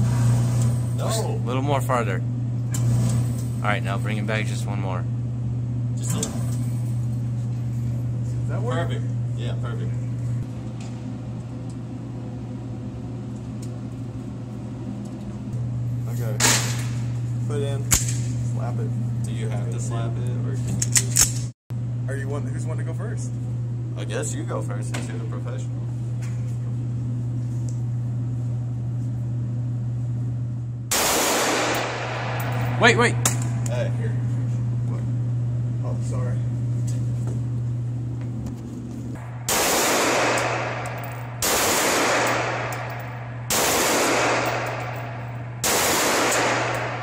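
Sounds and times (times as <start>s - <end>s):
ventilation hum: 0.0s - 47.0s
pistol shot: 30.9s - 33.6s, 39.2s - 47.0s.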